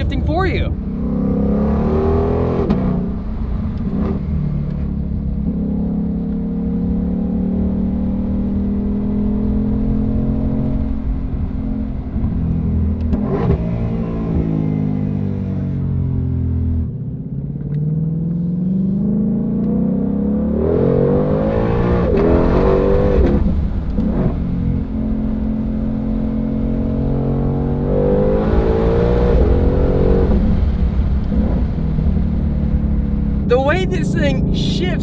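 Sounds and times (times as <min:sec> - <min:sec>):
car engine accelerating: 0:00.0 - 0:35.0.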